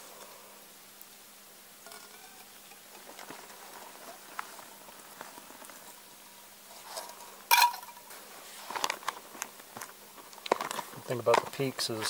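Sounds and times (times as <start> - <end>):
water bubbling in a pot: 0.0 - 8.1
metal cookware clank: 1.8 - 3.1.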